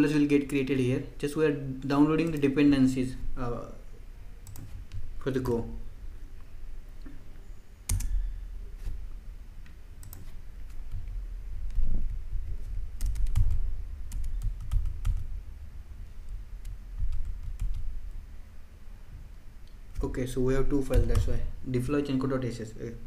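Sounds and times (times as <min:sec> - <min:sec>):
keyboard keystrokes clicking: 0:10.0 - 0:11.8, 0:20.8 - 0:21.4.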